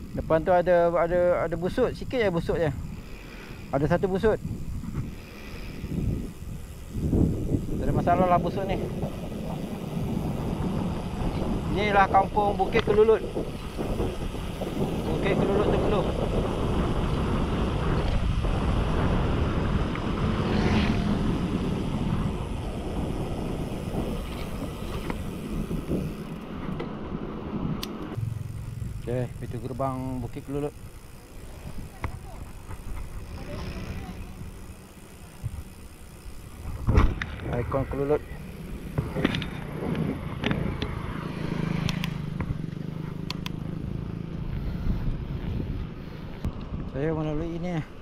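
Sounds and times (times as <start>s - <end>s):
steady low hum: 0.0s - 41.3s
bicycle tyres on tarmac: 0.0s - 48.0s
wind over microphone: 0.0s - 48.0s.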